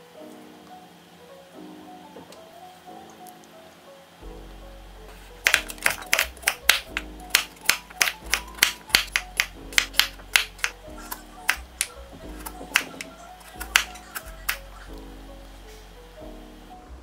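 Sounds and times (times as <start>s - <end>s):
background music: 0.0s - 17.0s
knife chopping on wooden board: 5.4s - 10.8s, 12.4s - 14.6s.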